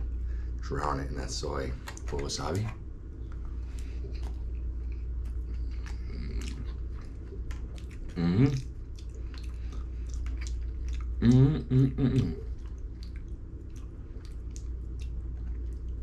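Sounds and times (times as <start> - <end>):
close chewing: 3.3 - 16.0
person humming: 8.1 - 8.7, 11.2 - 12.5.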